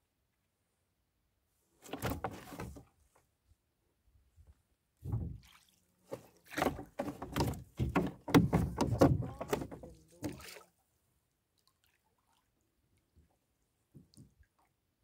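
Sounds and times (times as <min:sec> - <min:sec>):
net knocking against hull: 0:06.5 - 0:10.5.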